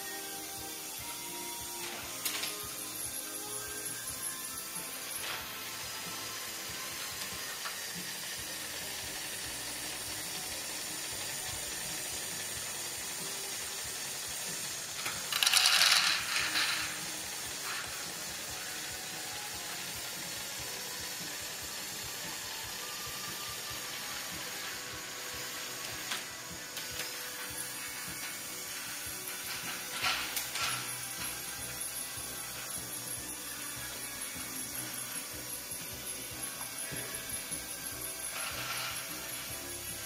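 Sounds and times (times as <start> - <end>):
motors and gears whirring: 0.0 - 40.0
plastic balls clattering: 15.0 - 17.0.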